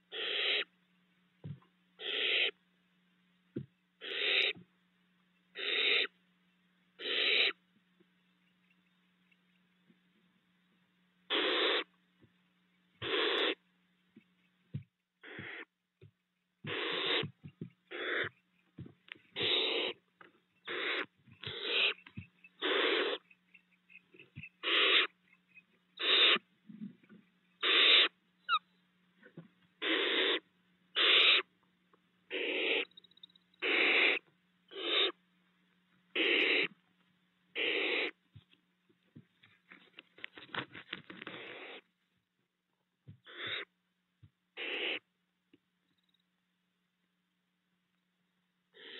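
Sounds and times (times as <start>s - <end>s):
owlets hissing calls: 0.0s - 0.8s, 2.0s - 2.6s, 4.0s - 4.6s, 5.5s - 6.2s, 7.0s - 7.6s, 11.3s - 12.0s, 13.0s - 13.6s, 15.2s - 15.7s, 16.6s - 18.5s, 19.2s - 26.6s, 27.6s - 28.7s, 29.8s - 31.5s, 32.3s - 33.0s, 33.6s - 35.2s, 36.1s - 36.8s, 37.5s - 38.2s, 41.2s - 41.9s, 43.2s - 43.7s, 44.6s - 45.1s.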